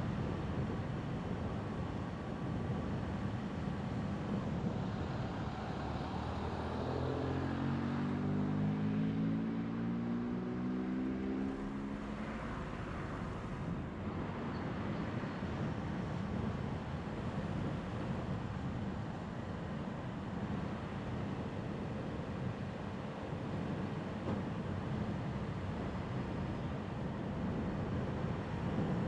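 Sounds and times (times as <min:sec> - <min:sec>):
tyre and road noise: 0:04.4 - 0:15.7
engine accelerating: 0:05.4 - 0:14.1.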